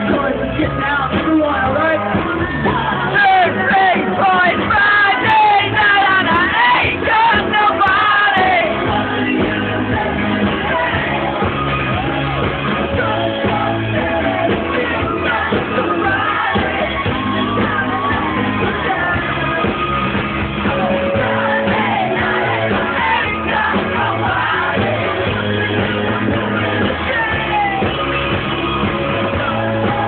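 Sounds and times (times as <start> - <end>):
person singing lead vocal: 0.0 - 30.0
rock band playing live: 0.0 - 30.0.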